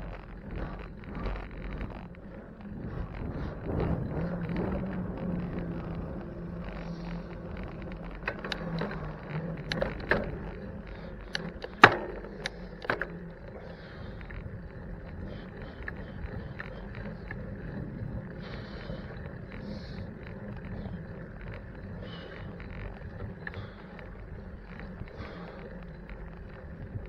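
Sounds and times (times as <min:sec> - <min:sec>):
street traffic hum: 0:00.0 - 0:27.0
sharp clicks and knocks: 0:05.2 - 0:13.6.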